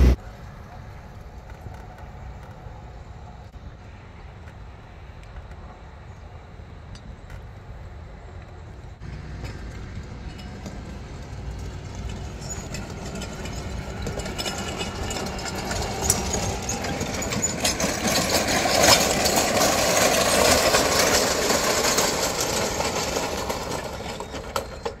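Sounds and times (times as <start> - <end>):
ball picker rollers clattering: 9.0 - 25.0.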